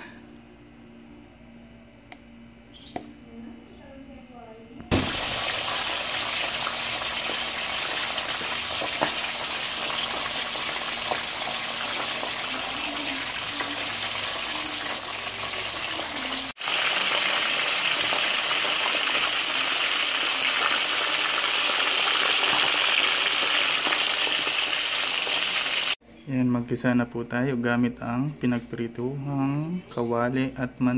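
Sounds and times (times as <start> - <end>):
oil popping: 4.9 - 12.4
fish sizzling in hot oil: 4.9 - 26.0.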